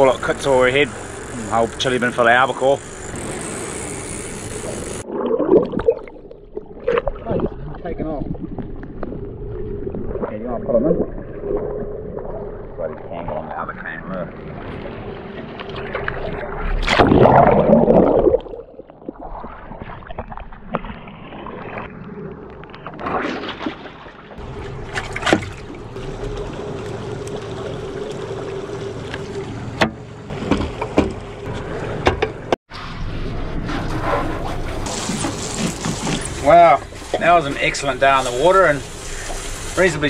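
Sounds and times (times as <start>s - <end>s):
steady hum: 0.0s - 5.1s
water rushing and sloshing: 0.0s - 40.0s.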